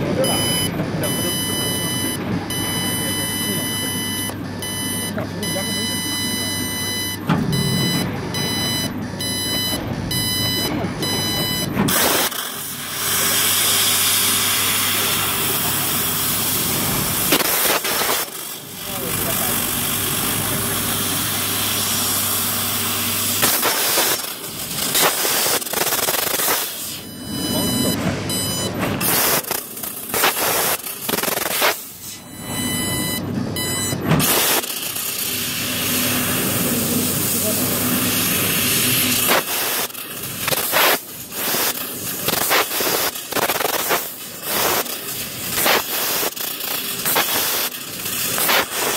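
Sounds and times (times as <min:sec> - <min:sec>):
low machine hum: 0:00.0 - 0:11.9, 0:24.3 - 0:30.1
high whine of axis drives: 0:00.0 - 0:17.4, 0:18.5 - 0:39.5
high whining tones: 0:24.8 - 0:34.7
loud hiss of gas jet: 0:35.4 - 0:45.0, 0:45.6 - 0:46.4, 0:47.0 - 0:48.9.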